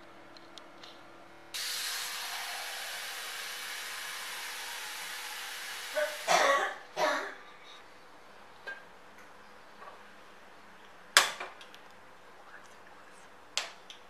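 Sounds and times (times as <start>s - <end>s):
tap water running into metal pot: 1.6s - 6.3s.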